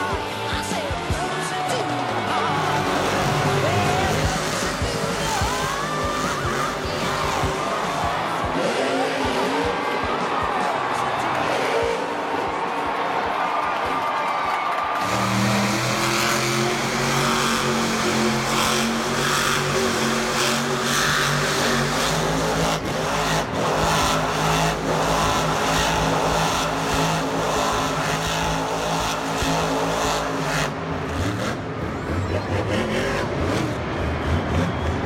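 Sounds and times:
arena crowd noise: 0:00.0 - 0:35.0
monster truck engine running: 0:00.0 - 0:35.0.

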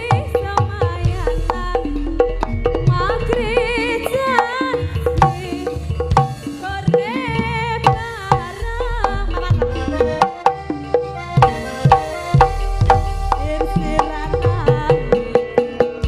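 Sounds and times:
woman singing with vibrato: 0:00.0 - 0:10.3, 0:13.1 - 0:16.0
hand drum strokes: 0:00.0 - 0:16.0
traditional ensemble accompaniment: 0:08.0 - 0:16.0.

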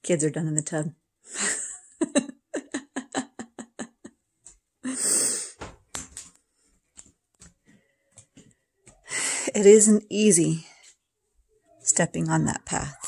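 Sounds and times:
woman laughing quietly: 0:01.3 - 0:04.2.

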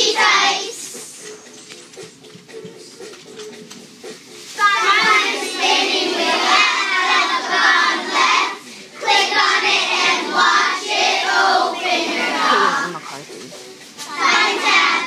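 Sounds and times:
children singing together: 0:00.0 - 0:01.4, 0:04.6 - 0:13.0, 0:14.0 - 0:15.0.

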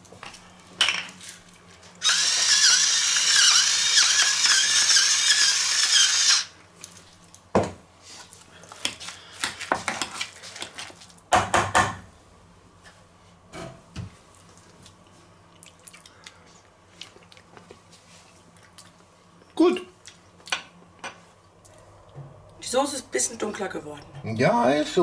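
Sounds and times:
small electric motor whirring: 0:02.0 - 0:06.6.

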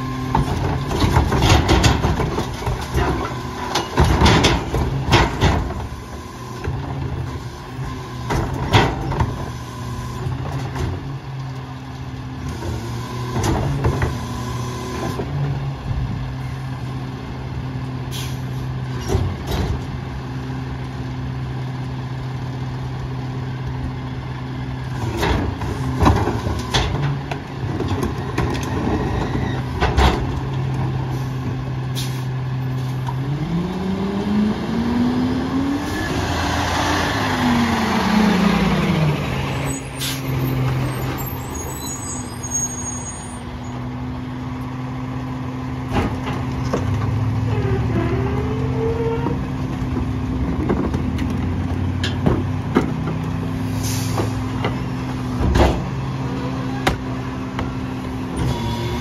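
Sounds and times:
garbage truck diesel engine: 0:00.0 - 0:59.0
air brakes hissing: 0:18.1 - 0:18.7, 0:32.0 - 0:33.0, 0:39.6 - 0:43.4, 0:53.6 - 0:54.4.

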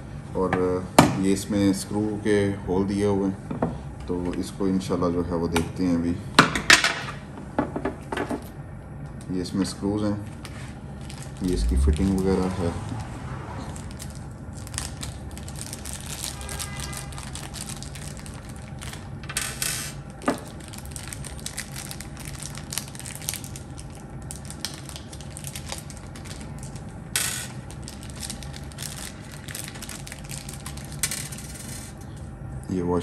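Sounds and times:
plastic bag crinkling: 0:10.6 - 0:12.7, 0:13.7 - 0:32.0.

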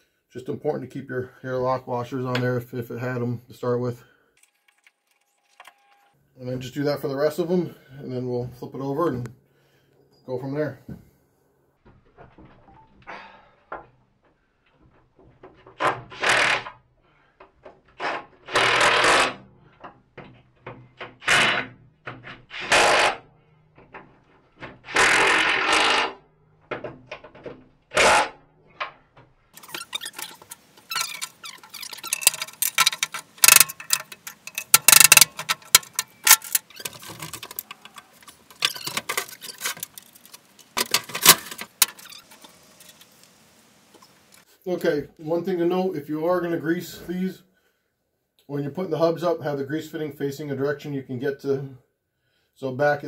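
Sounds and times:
impact wrench bursts: 0:16.2 - 0:16.7, 0:18.5 - 0:19.4, 0:22.5 - 0:23.2, 0:24.9 - 0:26.2, 0:27.9 - 0:28.4, 0:29.6 - 0:37.8
metal knocks and clanks: 0:29.2 - 0:43.0.

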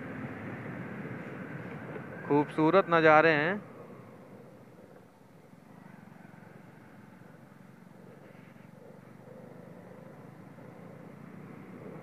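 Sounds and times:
road noise: 0:00.0 - 0:12.0
motorcycle engine running: 0:03.4 - 0:12.0.

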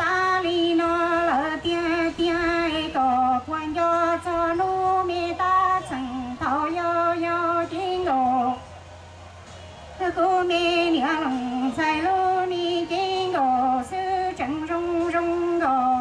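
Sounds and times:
woman singing into microphone: 0:00.0 - 0:08.7, 0:10.0 - 0:16.0.

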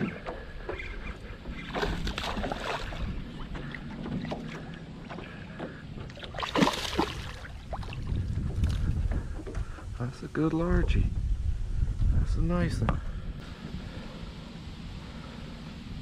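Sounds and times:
wind rumble on microphone: 0:00.0 - 0:16.0
fish splashing in water: 0:01.6 - 0:03.6, 0:06.1 - 0:08.0.

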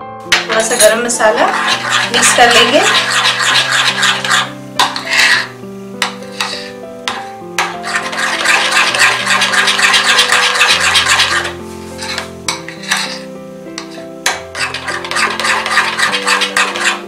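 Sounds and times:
background music with held notes: 0:00.0 - 0:17.0
spoon stirring batter in glass bowl: 0:00.2 - 0:13.2, 0:13.8 - 0:17.0.

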